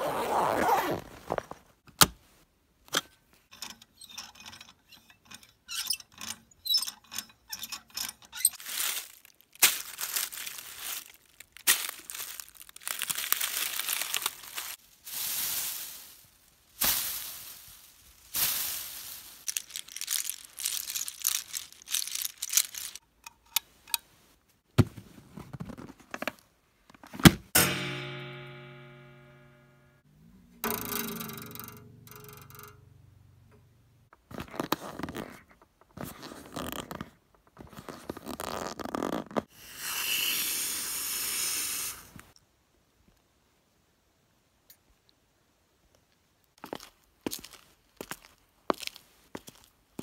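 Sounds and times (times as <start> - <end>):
bag zipper being pulled: 0.0 - 1.4, 37.8 - 39.4
handling noises: 0.0 - 28.1
branches and dry leaves rustling: 8.6 - 23.0.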